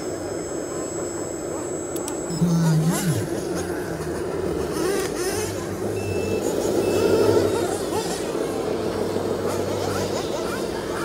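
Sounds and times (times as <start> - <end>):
short high beeps: 6.0 - 7.2.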